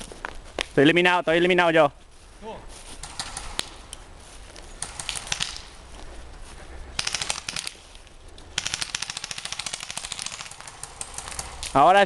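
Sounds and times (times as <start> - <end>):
airsoft guns firing bursts: 3.0 - 3.8, 4.8 - 5.8, 7.0 - 7.8, 8.5 - 12.0.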